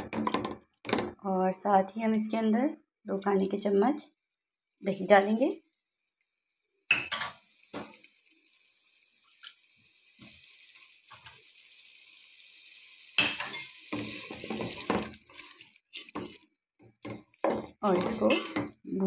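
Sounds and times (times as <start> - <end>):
food sizzling in a pot: 3.6 - 19.0
wooden spatula scraping a pot: 13.4 - 18.8.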